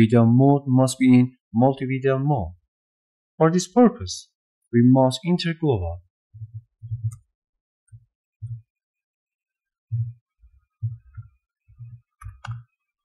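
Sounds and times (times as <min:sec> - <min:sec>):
sharp keyboard clicks: 0:11.0 - 0:12.6.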